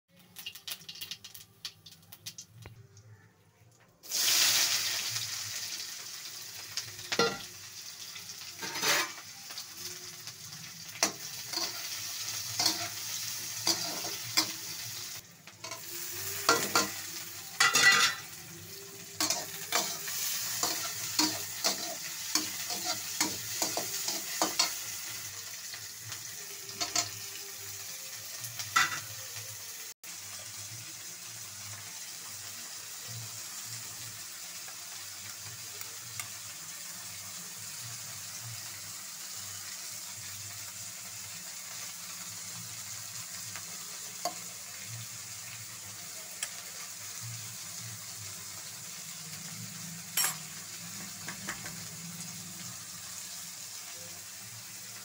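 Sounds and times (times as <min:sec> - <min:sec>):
onions sizzling in oil: 0:00.1 - 0:02.7, 0:04.0 - 0:55.0
seeds crackling in hot oil: 0:00.1 - 0:55.0
metal spatula scraping a pan: 0:08.6 - 0:09.3, 0:11.0 - 0:18.4, 0:19.1 - 0:25.2.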